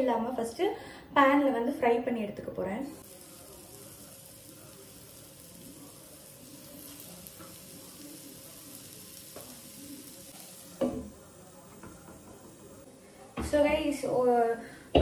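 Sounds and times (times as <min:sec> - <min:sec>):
chicken sizzling on a griddle: 0:03.0 - 0:13.2.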